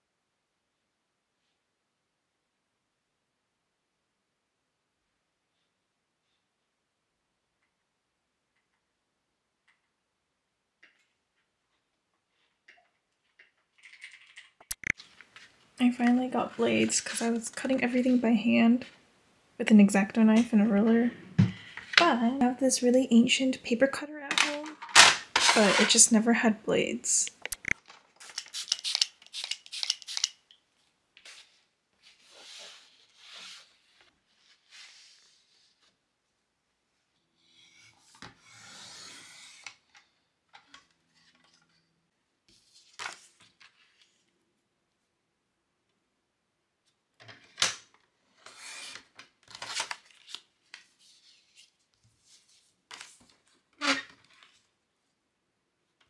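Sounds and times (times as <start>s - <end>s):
cards rustling: 24.4s - 26.0s, 27.4s - 30.4s, 48.5s - 53.4s
spray bottle squirting: 27.5s - 30.4s.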